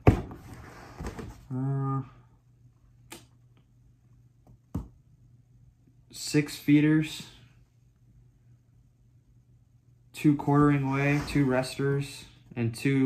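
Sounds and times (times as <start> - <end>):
man saying uhh: 1.5 - 2.2.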